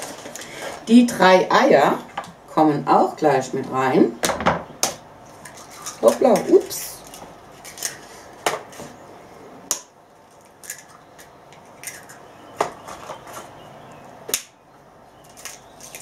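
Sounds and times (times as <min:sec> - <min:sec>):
eggs cracking clicks: 0:09.7 - 0:13.4.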